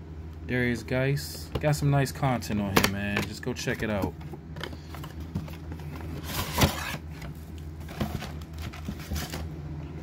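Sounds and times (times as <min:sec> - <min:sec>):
steady low hum: 0:00.0 - 0:10.0
handling rustle: 0:04.6 - 0:09.5.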